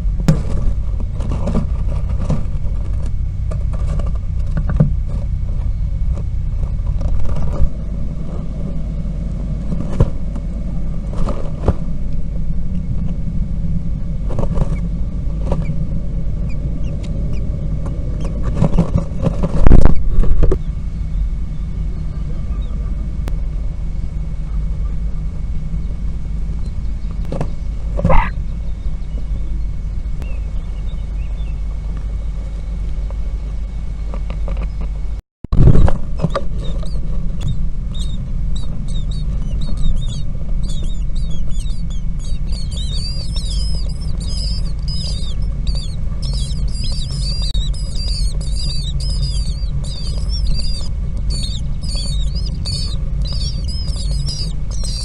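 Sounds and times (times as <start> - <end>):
low steady rumble: 0.0 - 55.0
nestlings begging calls: 15.5 - 23.0, 28.0 - 31.6, 36.1 - 55.0.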